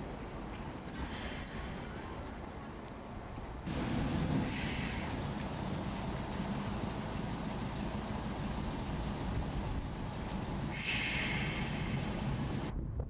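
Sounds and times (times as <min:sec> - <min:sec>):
locomotive rumbling: 0:00.0 - 0:12.9
hissing burst: 0:03.7 - 0:05.9, 0:10.4 - 0:12.7.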